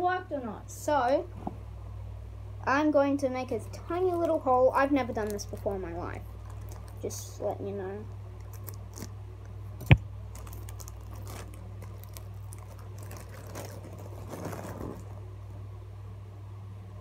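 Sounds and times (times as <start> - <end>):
steady low hum: 0.0 - 17.0
foil balloon crinkling: 4.0 - 7.4, 8.4 - 9.2, 9.8 - 15.3.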